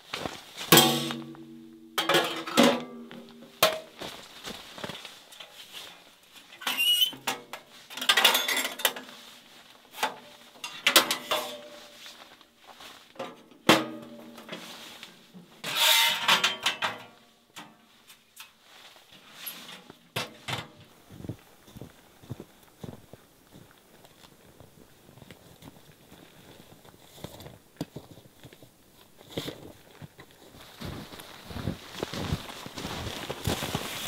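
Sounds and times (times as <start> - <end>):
metal stove clanks: 0.7 - 3.9, 15.7 - 17.8
metal scrape: 10.0 - 12.2, 14.0 - 17.1.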